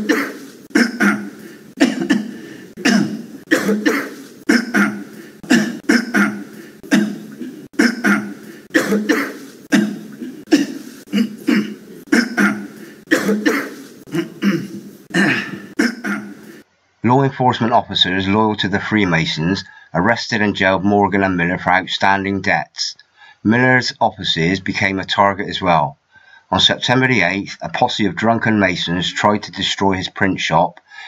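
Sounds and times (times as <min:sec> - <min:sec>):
man coughing: 0:00.0 - 0:16.6.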